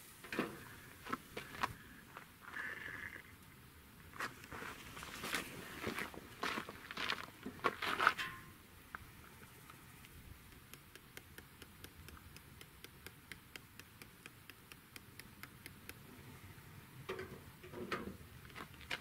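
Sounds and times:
seasoning shaker ticking: 10.4 - 16.0.

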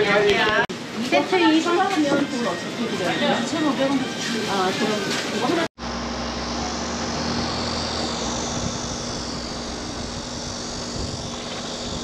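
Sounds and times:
low machine hum: 5.8 - 12.0
machine rushing hiss: 5.8 - 12.0.

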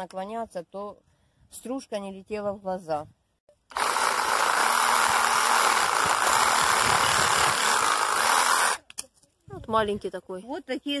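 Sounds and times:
reciprocating saw cutting branch: 3.7 - 8.9.

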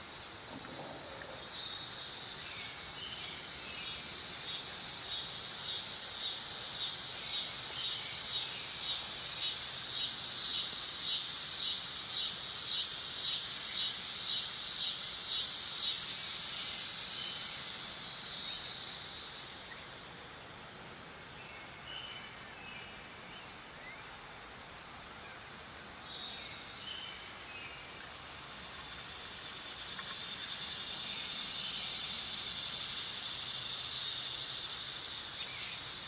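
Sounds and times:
cicada buzzing: 0.0 - 19.8, 27.3 - 36.0.

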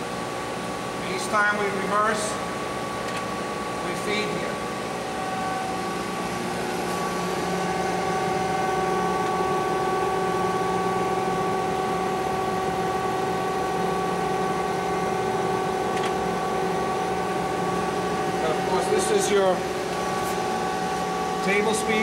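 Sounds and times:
grinding machine hum: 0.0 - 22.0.

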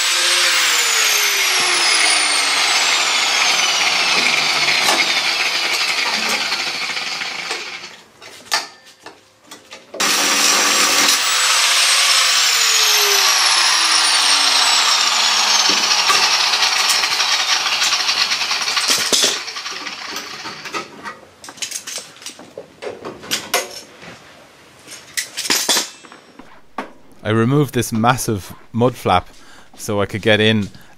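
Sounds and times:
power tool cutting sheet steel: 0.0 - 8.0, 10.0 - 20.8.

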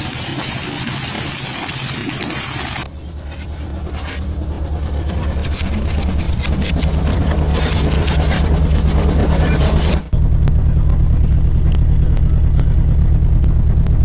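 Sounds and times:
sea and spray: 0.0 - 10.1
wind: 0.0 - 12.9
deep rumble: 0.0 - 14.0.

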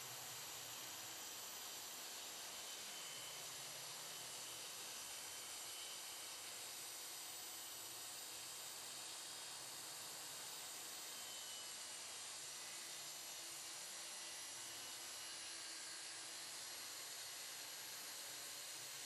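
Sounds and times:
saw cutting plywood with faint hiss: 10.6 - 19.0.

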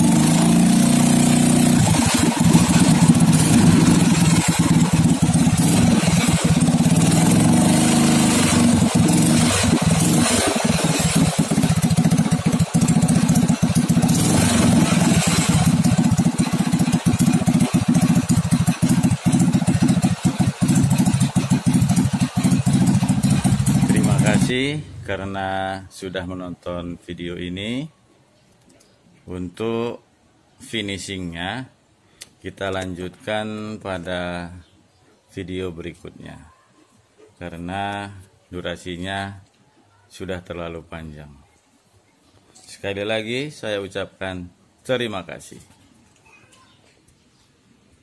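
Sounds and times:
motorcycle engine running: 0.0 - 24.7.

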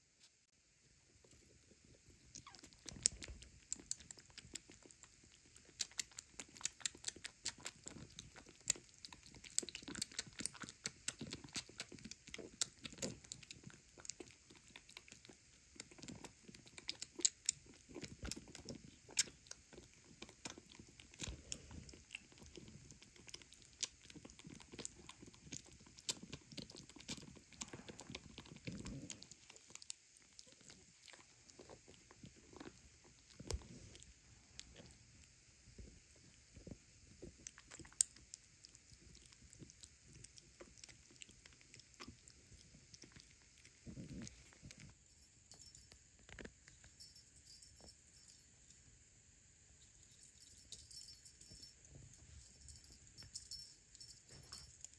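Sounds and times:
kitten suckling from a bottle: 1.1 - 45.0.

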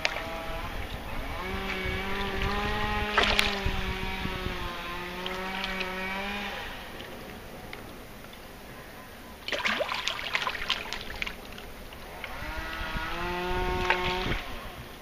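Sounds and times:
engine droning hum: 0.0 - 15.0.

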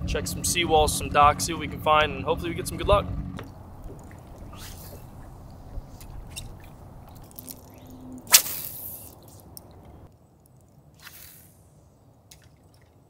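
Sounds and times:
water lapping against boat hull: 3.2 - 8.3
sharp splash: 8.3 - 9.2, 11.0 - 11.6.

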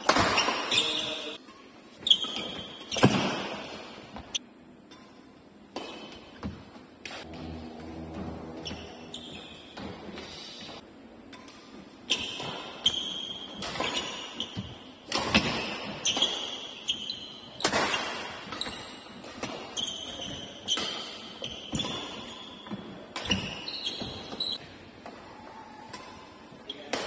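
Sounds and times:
shoes squeaking on court floor: 0.0 - 4.4, 5.8 - 10.8, 12.0 - 27.0
rackets striking shuttlecock: 11.2 - 24.4.

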